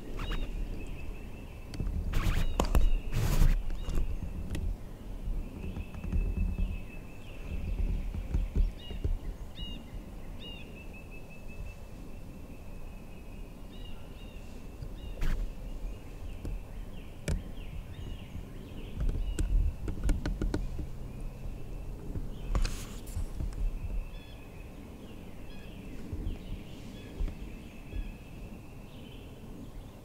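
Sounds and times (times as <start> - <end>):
short bird chirps: 0.2 - 0.6.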